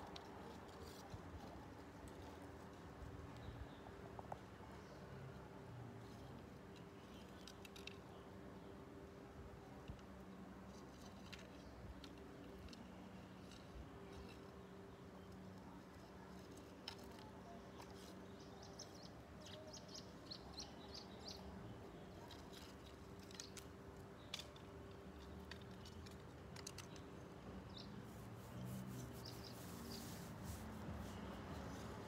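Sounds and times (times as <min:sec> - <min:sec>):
faint bird chirps: 0:13.1 - 0:24.4.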